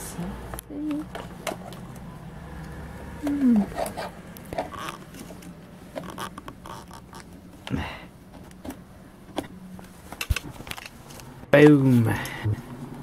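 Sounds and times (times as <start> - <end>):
rustling and scraping: 2.8 - 11.3.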